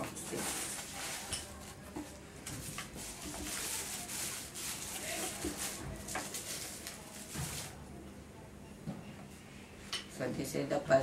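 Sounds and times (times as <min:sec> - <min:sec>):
plastic bag crinkling: 0:00.0 - 0:07.8.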